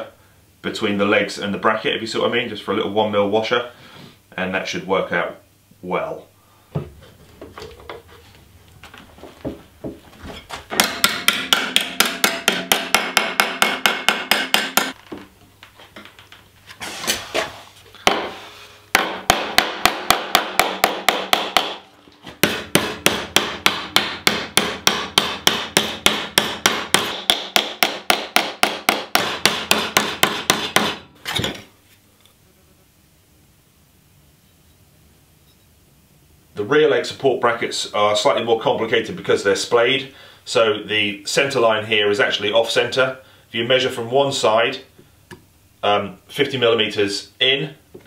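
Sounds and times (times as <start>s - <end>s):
hammer striking sheet metal: 10.8s - 15.0s, 22.4s - 31.0s.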